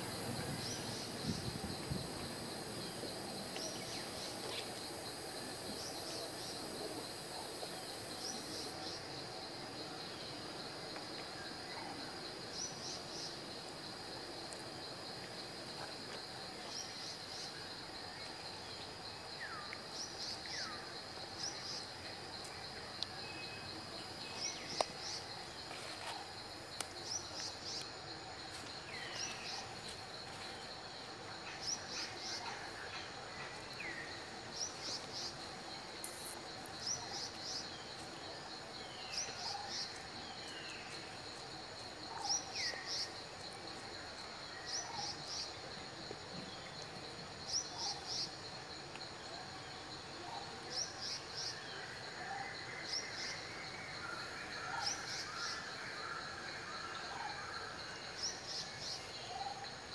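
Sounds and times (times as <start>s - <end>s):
high-pitched insect drone: 36.0s - 37.6s.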